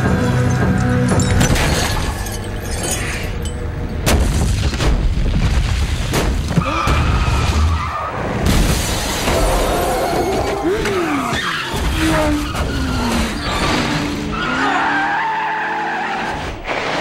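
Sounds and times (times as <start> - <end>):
music: 0.0 - 4.1.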